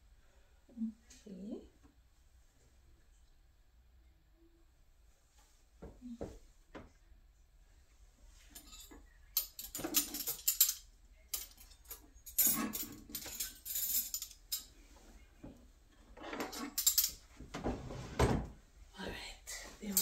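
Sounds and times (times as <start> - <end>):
small metal objects clinking: 8.6 - 14.7, 16.4 - 17.2.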